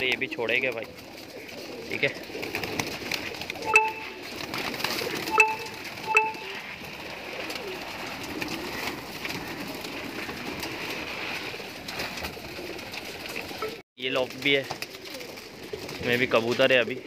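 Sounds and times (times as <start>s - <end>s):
pigeons cooing: 0.0s - 13.8s, 14.8s - 17.0s
wings fluttering: 0.0s - 17.0s
sharp high-pitched tones: 3.7s - 4.3s, 5.3s - 6.6s.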